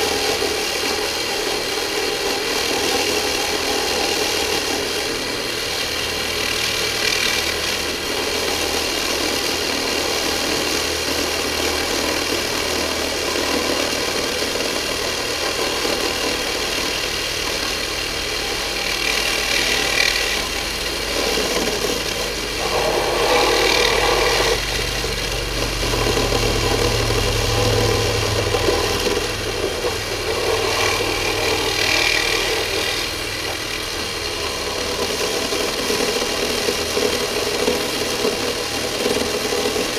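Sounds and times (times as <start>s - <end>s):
power tool cutting wire mesh: 0.0s - 39.9s.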